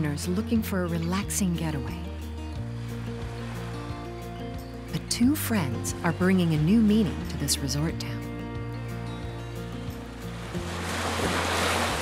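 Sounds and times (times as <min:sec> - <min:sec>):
music of held chords and bass: 0:00.0 - 0:12.0
waves washing over rocks: 0:10.4 - 0:12.0.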